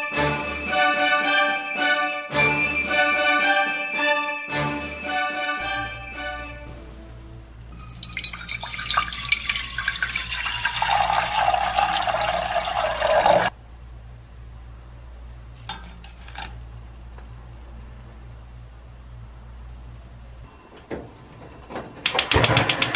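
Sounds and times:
water pouring into metal pot: 7.8 - 13.5.

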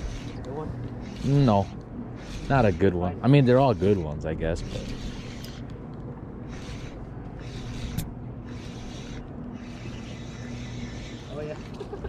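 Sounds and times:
fishing reel whirring: 0.0 - 5.7, 6.3 - 12.0
steady low hum: 0.0 - 12.0
sharp reel click: 6.5 - 11.8.

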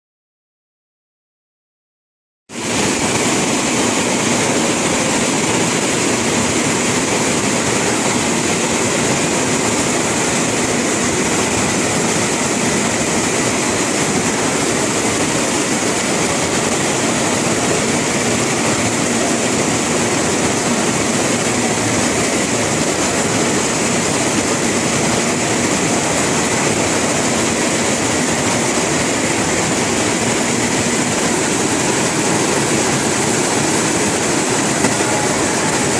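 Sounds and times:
machine mechanical hum with hiss: 2.6 - 35.9.

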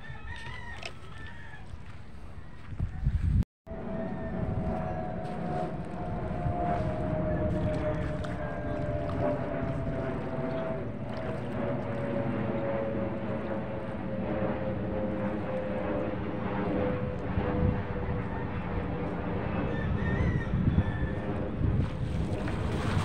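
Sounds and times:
low rumble of wind or water: 0.0 - 23.0
motor droning: 3.7 - 19.6.

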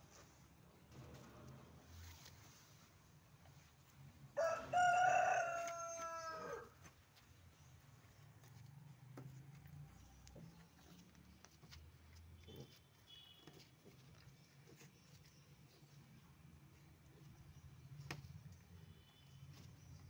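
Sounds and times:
rooster crowing: 4.4 - 6.8.

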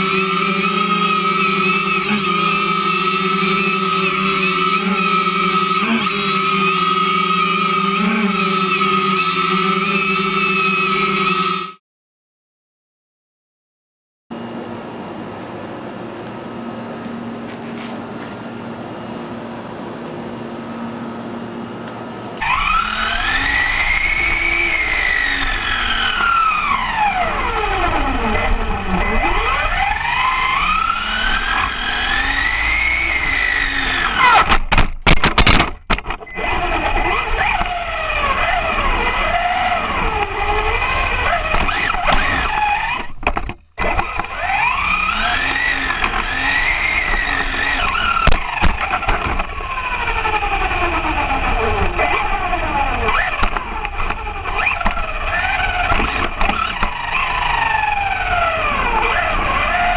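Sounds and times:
electric motor and gears whining: 0.0 - 11.8, 14.3 - 59.9
tyre noise on asphalt: 27.9 - 59.9.

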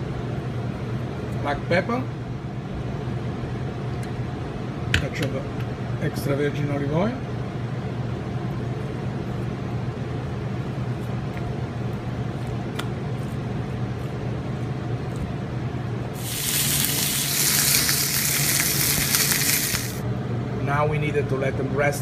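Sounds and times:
steak sizzling on grill pan: 16.2 - 20.0.

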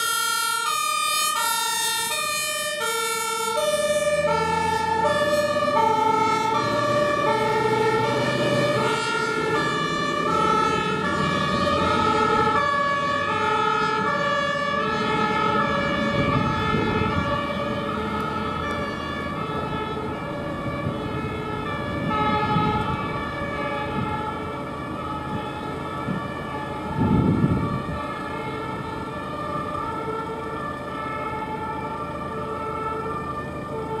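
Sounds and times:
road traffic noise: 0.0 - 34.0
two-tone fire engine sirens: 0.0 - 34.0
vehicle passing close: 1.2 - 25.1.

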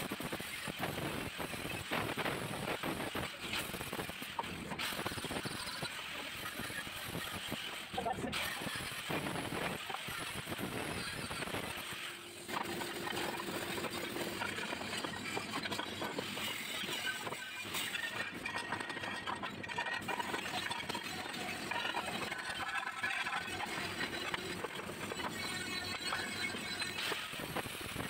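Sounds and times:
welding workshop background noise: 0.0 - 28.0.

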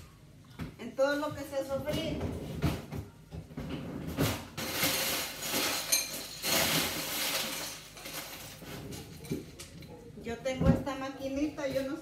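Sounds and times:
dishes and utensils clattering: 3.6 - 10.0.

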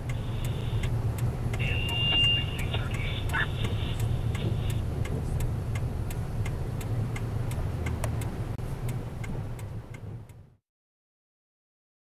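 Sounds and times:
engine and tyre rumble: 0.0 - 10.6
even ticking: 0.0 - 10.6.

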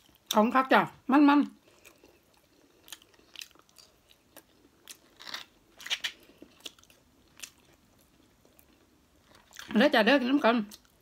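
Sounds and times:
person chewing food: 1.6 - 9.7.

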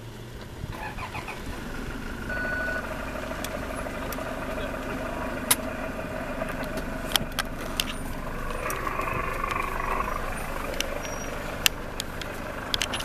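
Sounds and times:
vehicle engine running: 0.0 - 13.0
sharp clicks: 3.3 - 5.8, 6.4 - 13.0.

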